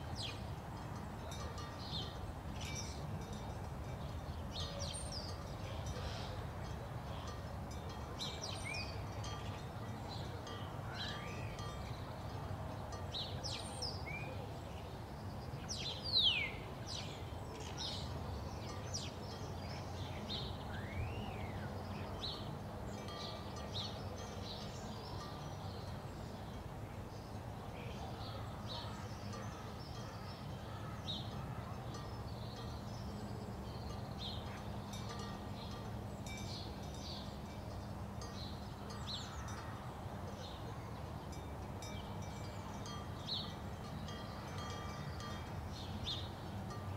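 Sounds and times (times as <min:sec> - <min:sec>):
birds chirping and whistling: 0:20.7 - 0:21.8.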